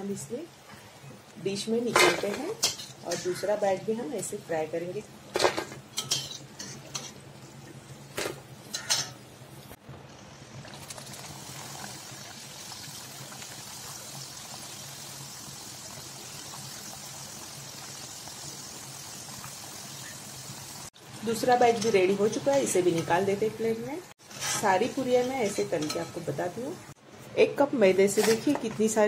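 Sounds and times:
metal spoon clinking on pan: 0:06.0 - 0:07.1, 0:08.7 - 0:09.2
dough sizzling in hot oil: 0:08.6 - 0:27.0.

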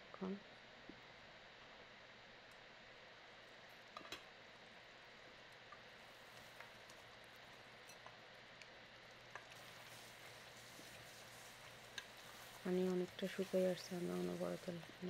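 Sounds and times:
curry sizzling in metal pot: 0:03.4 - 0:15.0
wooden spatula scraping pot: 0:09.4 - 0:15.0.

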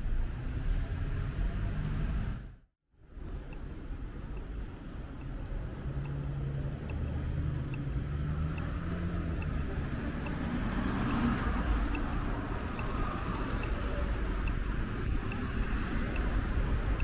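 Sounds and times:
traffic noise: 0:00.0 - 0:17.0
vehicle engine humming: 0:01.6 - 0:17.0.

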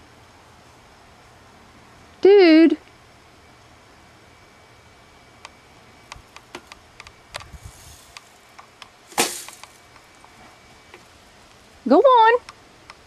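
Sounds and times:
loud crack: 0:09.1 - 0:09.8.

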